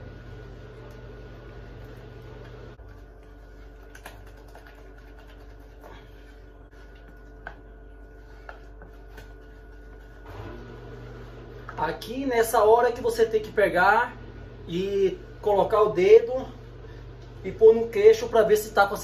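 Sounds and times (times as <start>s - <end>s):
low hum: 0.0s - 12.0s
spoon scraping plastic bowl: 2.9s - 10.3s.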